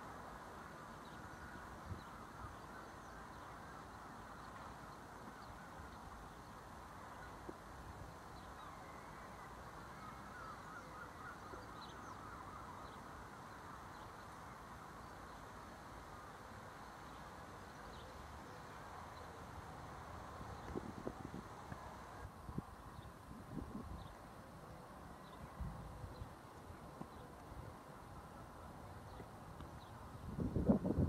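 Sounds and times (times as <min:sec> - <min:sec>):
small birds chirping: 0:00.6 - 0:31.0
wind rumble on microphone: 0:20.3 - 0:24.4, 0:25.2 - 0:27.8, 0:29.1 - 0:31.0.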